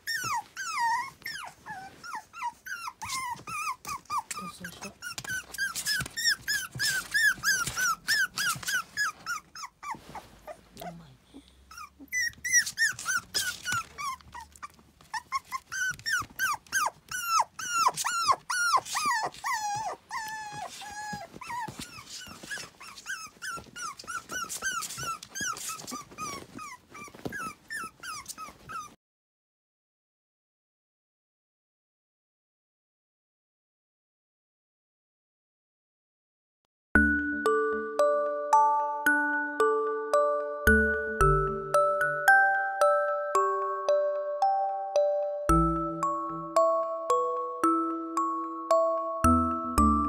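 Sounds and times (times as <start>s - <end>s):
puppies whining and yipping: 0.0s - 29.0s.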